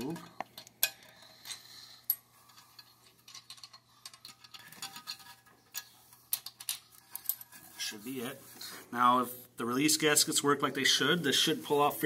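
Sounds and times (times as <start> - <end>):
metal nuts and washers clinking: 0.0 - 7.8.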